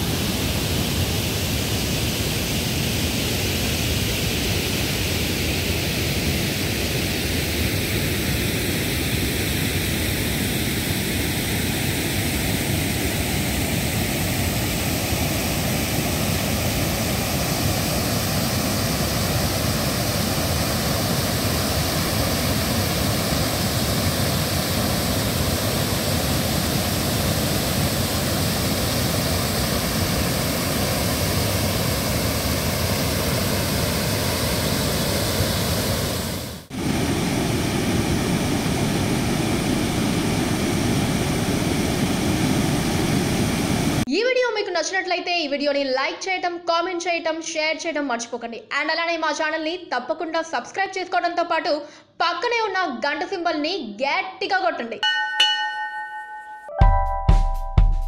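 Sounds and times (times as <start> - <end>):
waterfall roaring: 6.4 - 44.0.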